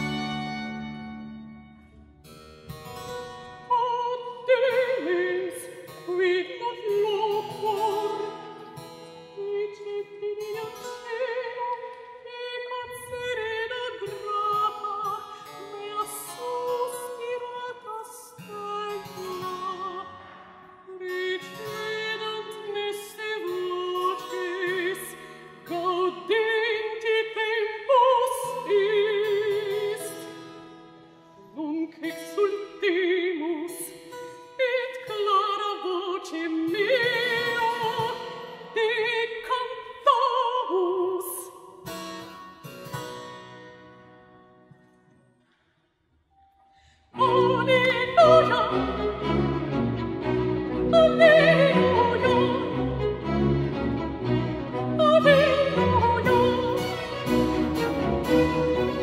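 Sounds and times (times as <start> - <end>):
baroque string orchestra: 0.0 - 1.6, 47.2 - 59.0
soprano singing with vibrato: 3.6 - 8.7, 9.3 - 30.4, 31.5 - 41.6, 47.2 - 49.5, 50.7 - 53.0, 54.9 - 59.0.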